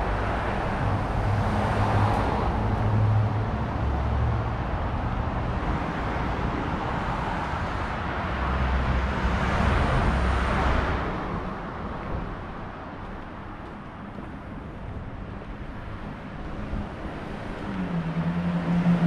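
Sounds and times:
low traffic rumble: 0:00.0 - 0:19.0
vehicle passing close by: 0:16.7 - 0:19.0.

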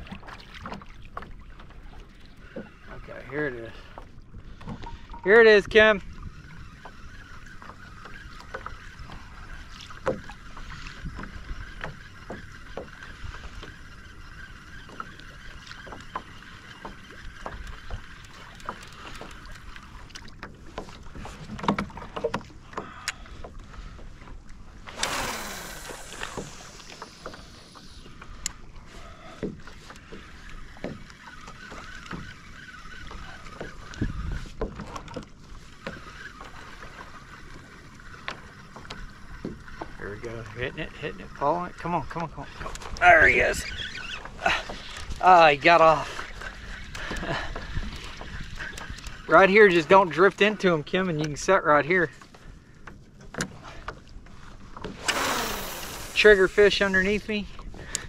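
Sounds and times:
water lapping against hull: 0:00.0 - 0:58.0.

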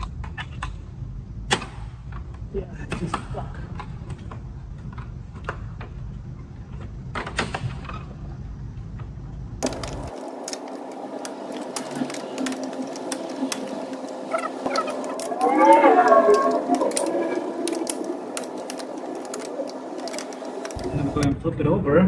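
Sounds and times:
plastic clips clicking and snapping: 0:09.6 - 0:21.3.

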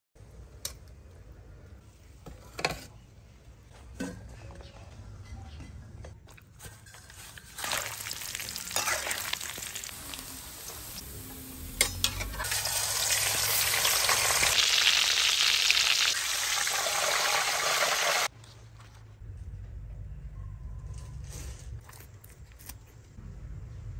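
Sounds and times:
intestine deep-frying in hot oil: 0:06.6 - 0:18.3.

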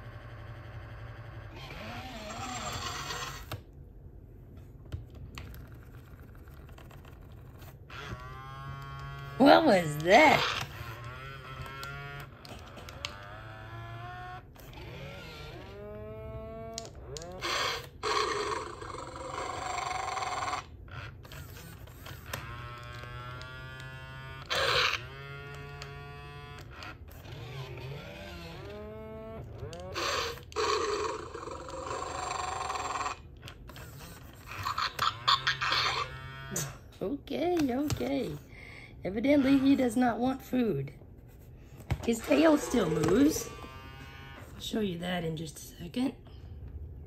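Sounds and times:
toy dinosaur growls and cries: 0:00.0 - 0:03.4, 0:07.9 - 0:20.7, 0:23.8 - 0:26.6, 0:29.6 - 0:33.3, 0:34.4 - 0:36.8, 0:39.2 - 0:40.0.

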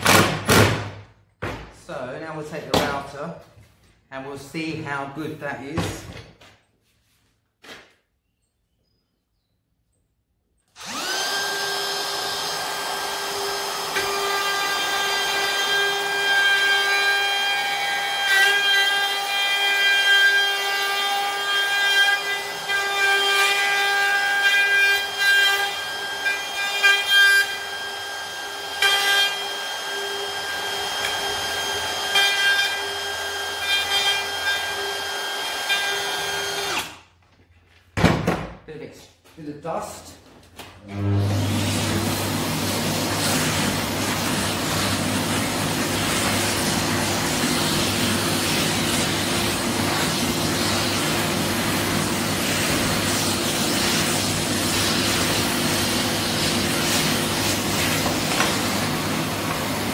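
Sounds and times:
electric router high whine: 0:10.7 - 0:18.4, 0:25.0 - 0:36.8.

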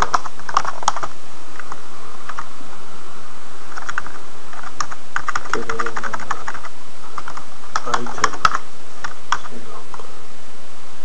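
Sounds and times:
computer keyboard typing: 0:00.0 - 0:01.7, 0:03.7 - 0:09.5.

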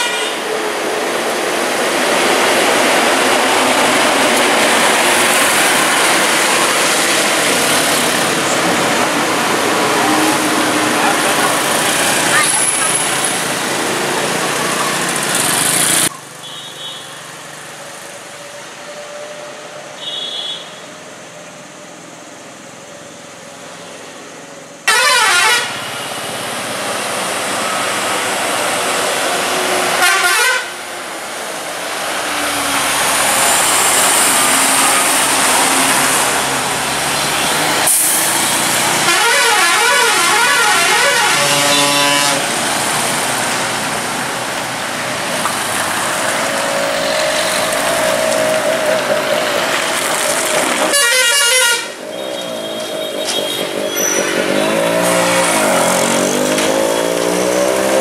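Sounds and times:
vehicle engines passing: 0:00.0 - 0:16.5, 0:25.4 - 0:58.0
horns honking: 0:24.9 - 0:26.1, 0:29.9 - 0:30.8, 0:37.3 - 0:42.6, 0:50.8 - 0:57.5
warbling multi-tone air horn: 0:39.1 - 0:42.5, 0:50.9 - 0:52.0.

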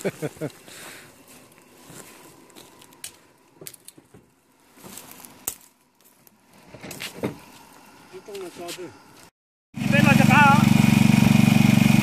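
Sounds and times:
rustling in dry brush: 0:00.0 - 0:03.5.

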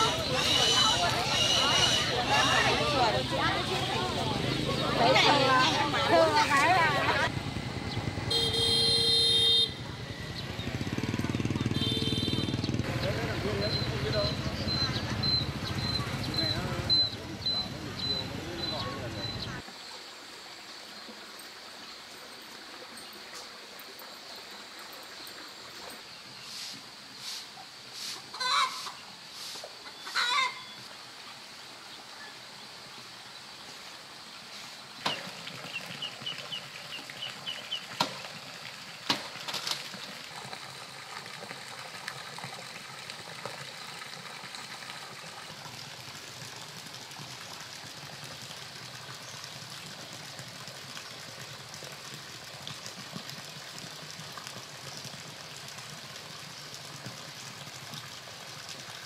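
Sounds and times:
chickens clucking: 0:28.0 - 0:29.0, 0:29.8 - 0:30.6.

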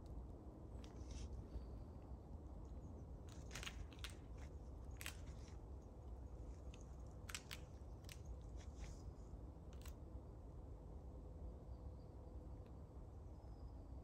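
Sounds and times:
dry wood cracking off tree: 0:03.3 - 0:05.6, 0:06.6 - 0:08.8.

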